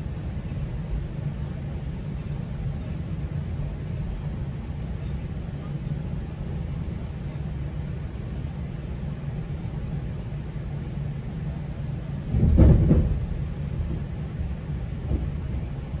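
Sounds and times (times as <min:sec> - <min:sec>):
train rumbling along track: 0:00.0 - 0:16.0
train clatter: 0:12.2 - 0:16.0.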